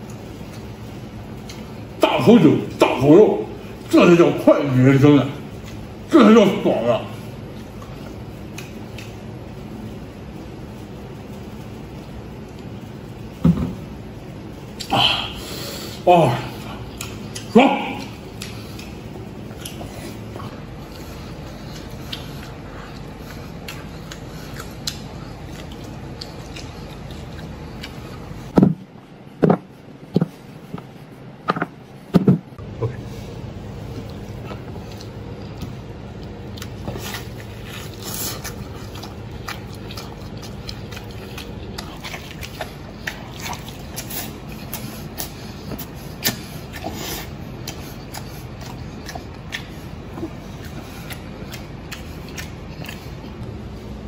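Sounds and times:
person chewing: 0.0 - 2.0, 5.5 - 6.1, 6.7 - 9.9, 14.6 - 28.6, 32.6 - 54.0.

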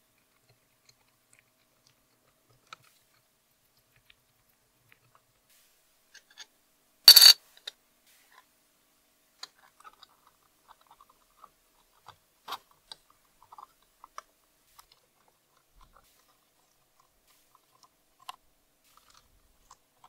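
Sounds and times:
glass lens clink: 7.1 - 7.4
small metal parts clicking: 7.1 - 7.4.

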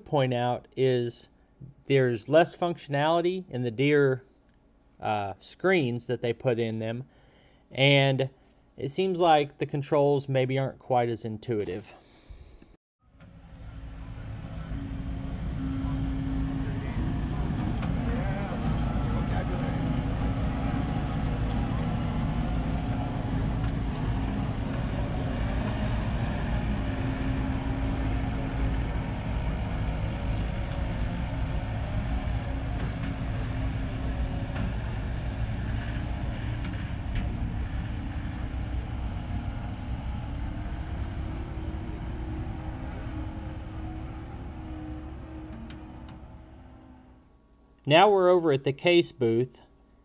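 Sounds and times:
diesel engine droning: 13.1 - 47.3.

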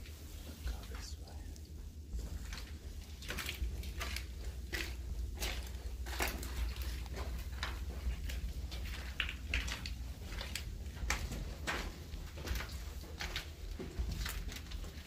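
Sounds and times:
footsteps crunching on grit: 1.8 - 15.0.

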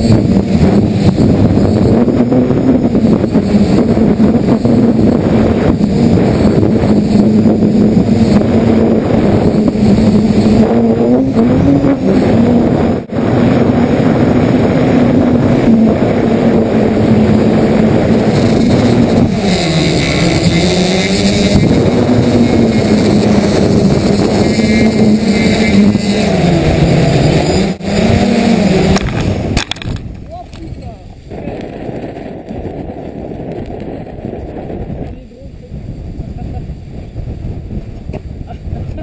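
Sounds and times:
drone motors humming: 0.0 - 39.0
rushing air noise: 0.0 - 39.0.

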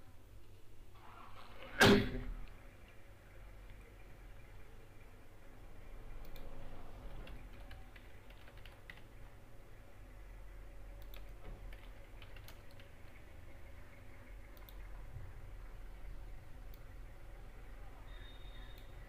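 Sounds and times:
low steady hum: 0.0 - 19.0
computer keyboard clicks: 6.2 - 9.1, 11.0 - 13.0.

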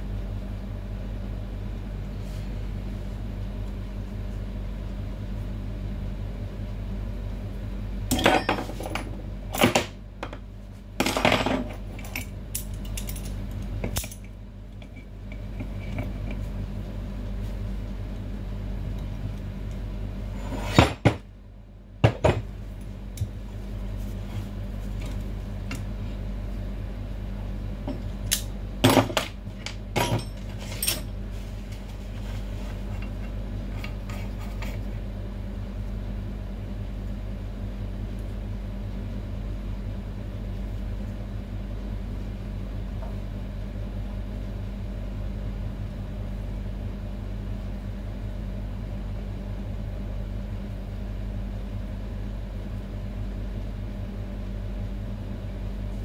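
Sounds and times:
steady low hum: 0.0 - 56.0
metal tools clinking: 30.0 - 31.1.

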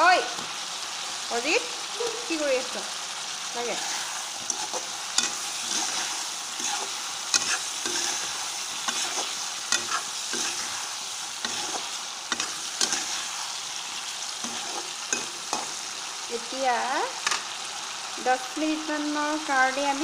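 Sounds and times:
potatoes sizzling in oil: 0.0 - 20.0
metal spatula scraping pan: 3.7 - 13.4, 14.4 - 15.8.

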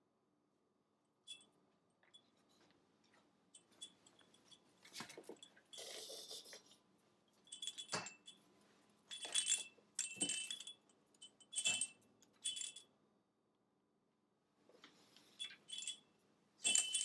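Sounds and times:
toy bell jingling: 15.4 - 16.0, 16.6 - 17.0.

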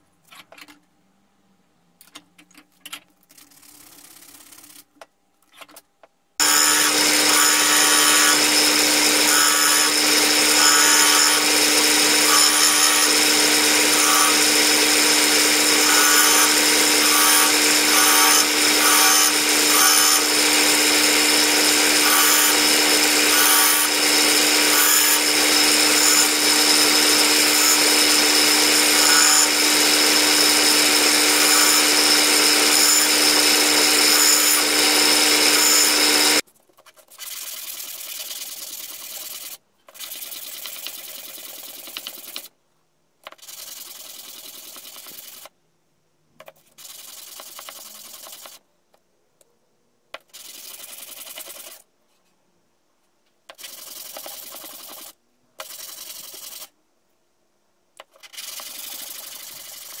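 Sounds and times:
disc sander motor hum: 6.4 - 36.4.

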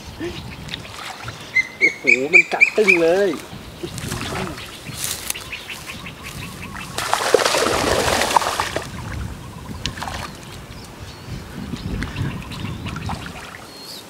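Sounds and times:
light water noises: 0.3 - 1.6, 2.6 - 11.0, 11.9 - 14.0
fish splashing at water surface: 7.0 - 8.9.

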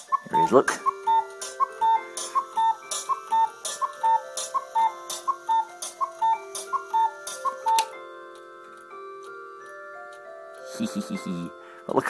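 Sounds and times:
cuckoo clock two-note call: 0.0 - 8.5, 10.5 - 11.7
sharp mechanical click: 1.4 - 7.9.

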